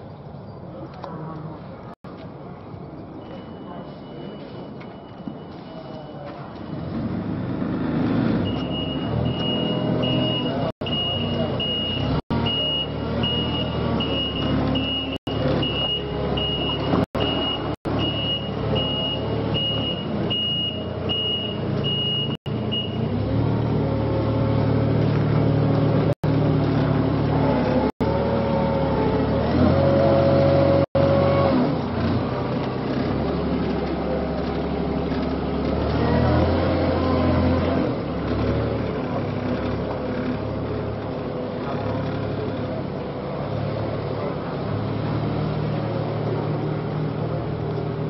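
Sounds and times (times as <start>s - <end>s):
heavy engine rumble: 0.0s - 48.0s
reversing alarm beeping: 8.4s - 23.1s.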